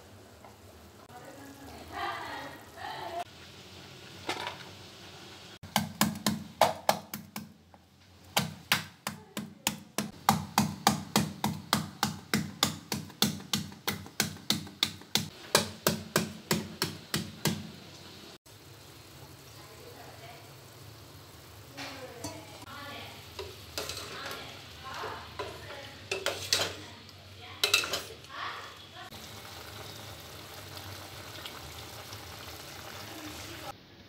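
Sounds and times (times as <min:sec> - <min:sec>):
pestle pounding in metal bowl: 0:09.6 - 0:17.6.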